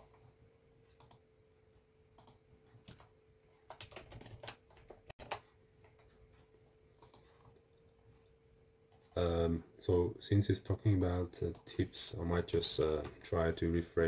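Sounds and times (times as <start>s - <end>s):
faint steady hum: 0.0s - 14.0s
computer keyboard keystrokes: 2.2s - 3.1s, 3.7s - 5.4s, 7.0s - 7.3s.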